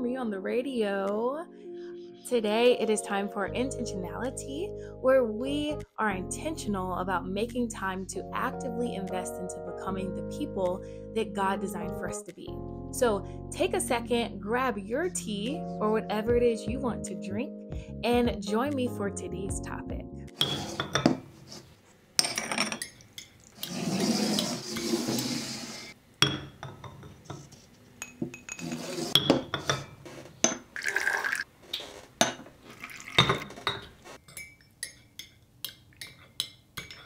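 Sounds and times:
porcelain china clinking: 28.0s - 29.8s, 33.7s - 37.0s
tea being poured: 30.8s - 31.5s, 32.7s - 33.5s.

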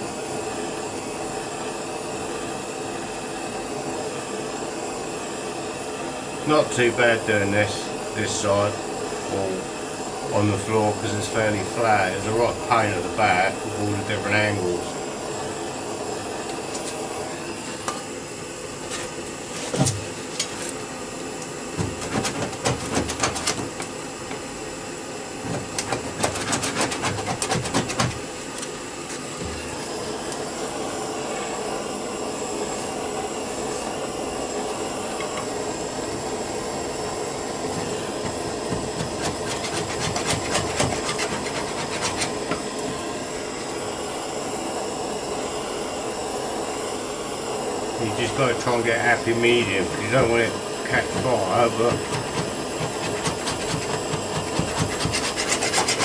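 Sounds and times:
blowtorch hissing: 0.0s - 56.0s
scraper rasping on metal: 22.0s - 23.7s, 25.7s - 28.2s, 38.7s - 42.6s, 51.9s - 56.0s.

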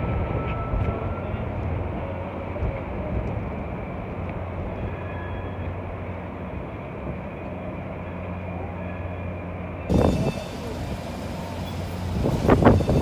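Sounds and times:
light-rail train humming: 0.0s - 13.0s
street traffic rumble: 0.0s - 13.0s.

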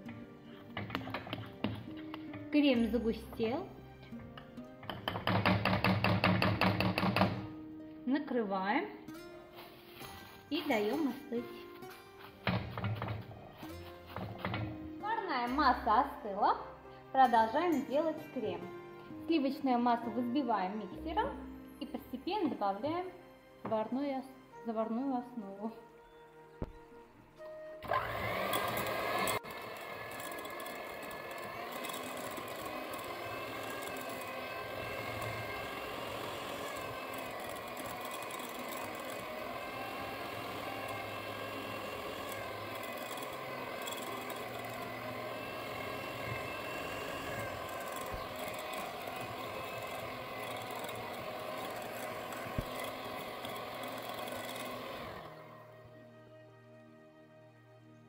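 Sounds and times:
electric hand mixer whining: 27.8s - 56.1s.

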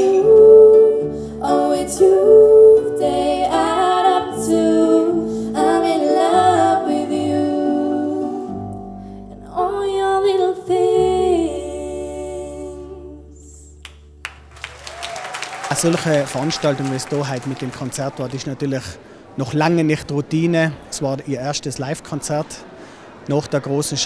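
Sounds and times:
woman singing: 0.0s - 8.6s, 9.4s - 13.6s.

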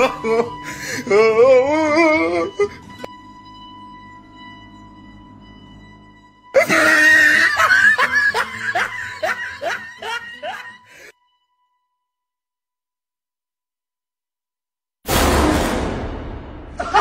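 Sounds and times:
faint music drone: 0.0s - 11.9s
loud burst of laughter: 6.6s - 10.7s, 16.7s - 17.0s.

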